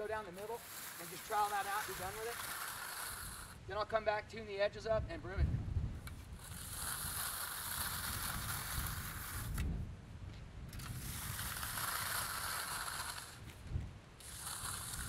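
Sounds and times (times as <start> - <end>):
trowel scraping concrete: 0.0 - 3.8, 6.1 - 9.7, 10.8 - 13.6, 14.2 - 15.0.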